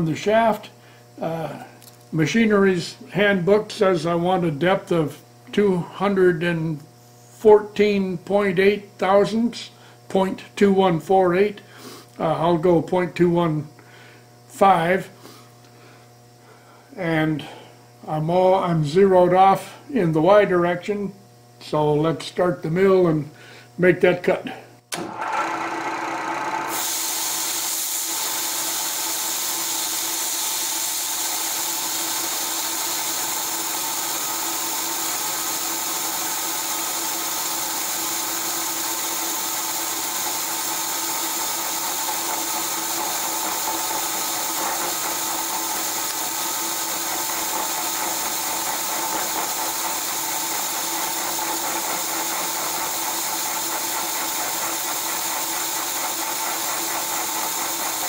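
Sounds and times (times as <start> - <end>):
constant coolant hiss: 0.0 - 25.0, 26.6 - 58.0
milling machine humming: 24.9 - 58.0.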